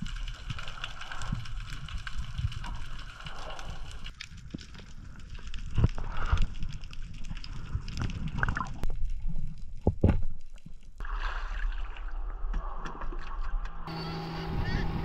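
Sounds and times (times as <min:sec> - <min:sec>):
water sloshing and splashing: 0:05.5 - 0:13.9.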